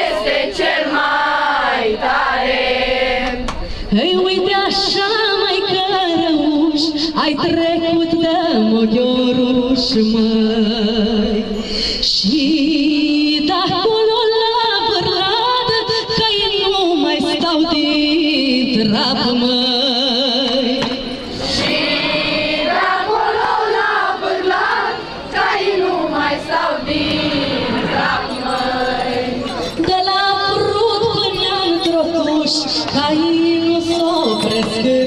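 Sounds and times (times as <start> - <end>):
woman singing folk song: 12.0 - 20.8, 29.8 - 35.0.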